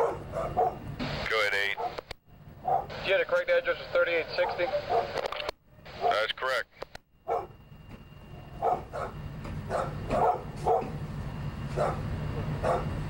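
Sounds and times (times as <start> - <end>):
dog barking: 0.0 - 0.8, 1.8 - 2.0, 2.6 - 2.9, 4.4 - 5.2, 6.0 - 6.2, 7.2 - 7.6, 8.6 - 11.0, 11.7 - 13.0
steady low hum: 0.0 - 13.0.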